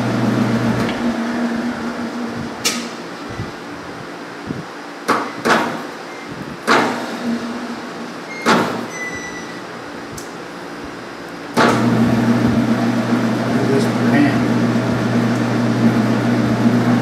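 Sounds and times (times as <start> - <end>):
metal lathe humming: 0.0 - 5.0
sharp clunks: 8.4 - 8.9.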